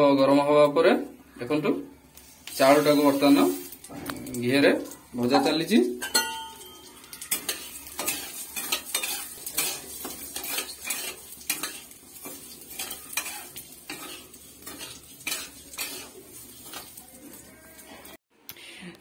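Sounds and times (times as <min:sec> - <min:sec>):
rice frying sizzle: 0:02.1 - 0:18.2
metal spoon scraping pan: 0:06.0 - 0:17.6.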